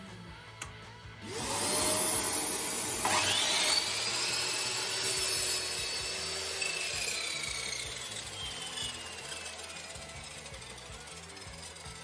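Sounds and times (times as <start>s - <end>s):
vacuum cleaner running: 1.2s - 10.6s
mitre saw motor whining: 1.2s - 12.0s.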